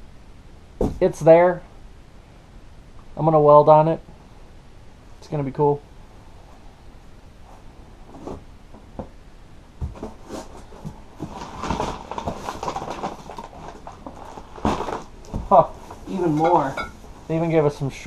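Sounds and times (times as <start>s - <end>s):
packing paper crinkling and rustling: 10.0s - 16.8s.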